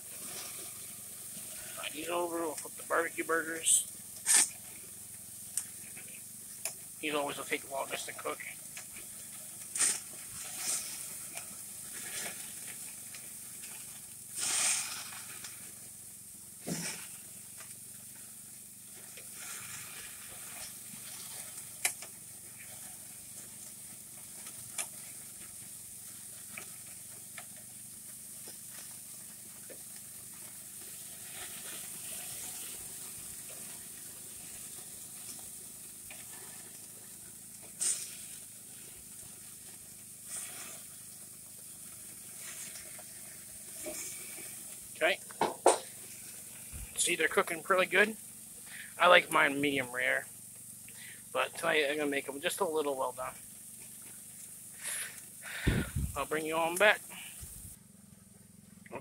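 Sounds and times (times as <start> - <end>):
patties sizzling on a grill: 0.0 - 58.0
fat flaring in fire: 13.7 - 15.5, 46.6 - 48.1, 54.8 - 57.8.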